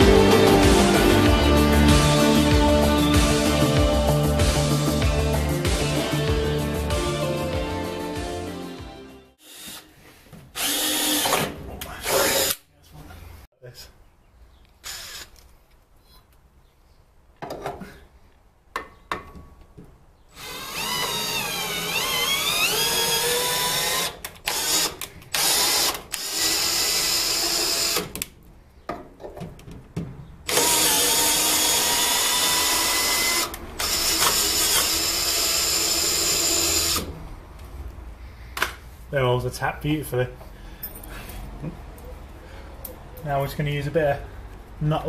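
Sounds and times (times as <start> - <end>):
cordless drill running: 9.4 - 9.9, 10.6 - 11.3, 14.8 - 15.3, 20.4 - 28.1, 30.5 - 37.1.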